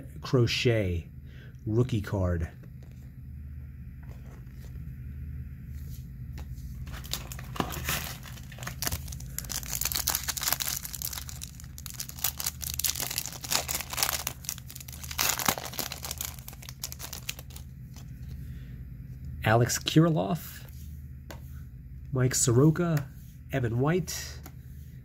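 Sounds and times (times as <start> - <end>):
foil wrapper tearing and crinkling: 6.9 - 18.0.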